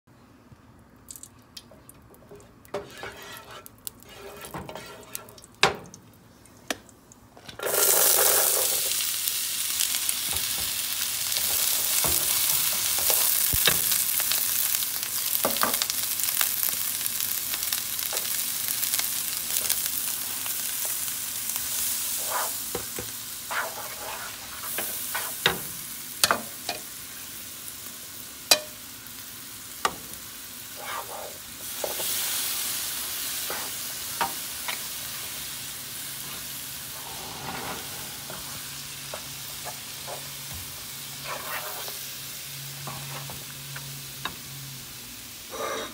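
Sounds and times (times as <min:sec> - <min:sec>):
wooden spoon pushing fat in pan: 0:02.7 - 0:05.3
onions sizzling in hot fat: 0:02.7 - 0:05.5, 0:07.6 - 0:45.9
spoon tapping against pan: 0:28.5 - 0:28.8.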